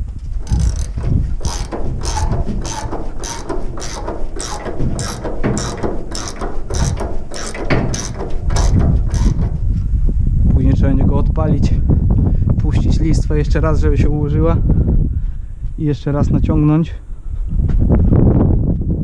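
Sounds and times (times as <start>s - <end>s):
ratchet wrench clicking: 0.4s - 9.6s.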